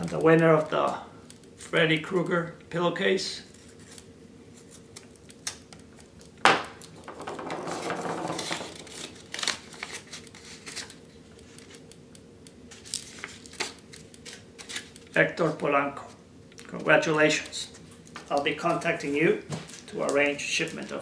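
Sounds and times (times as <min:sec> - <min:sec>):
paper crinkling: 0:03.5 - 0:06.1, 0:08.4 - 0:11.9, 0:12.7 - 0:15.6, 0:19.6 - 0:21.0.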